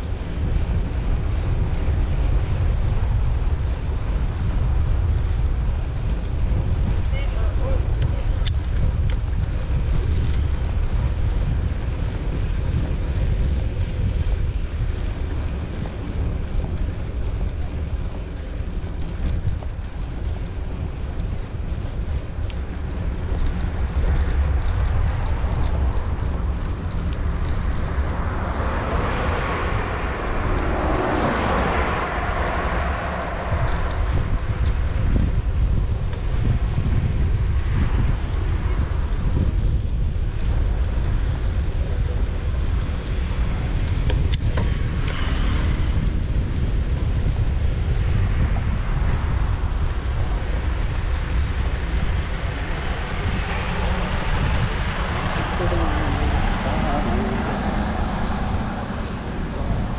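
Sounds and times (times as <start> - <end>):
wind buffeting microphone: 0.0 - 59.9
car passing close by: 28.0 - 34.6, 52.8 - 59.9.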